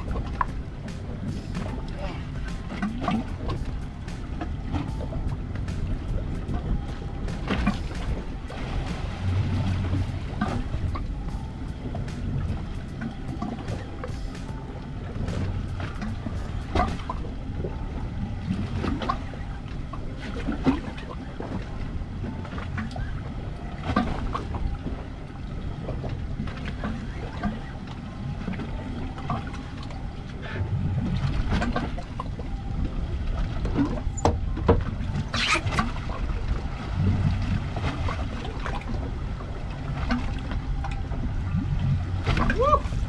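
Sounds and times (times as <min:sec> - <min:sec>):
water slapping against boat hull: 0:00.0 - 0:17.4, 0:31.2 - 0:32.4, 0:33.3 - 0:43.0
low rumble of sea and wind: 0:00.0 - 0:43.0.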